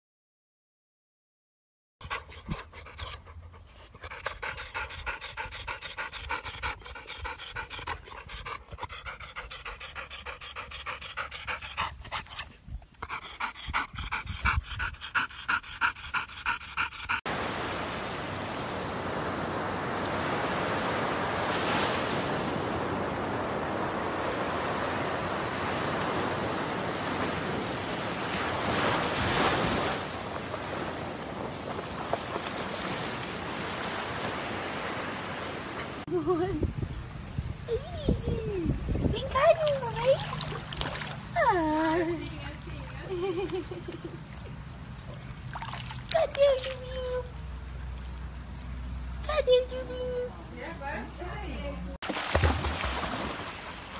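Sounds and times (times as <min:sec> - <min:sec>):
dog panting: 0:02.0 - 0:17.3
waves breaking on a beach: 0:17.3 - 0:36.1.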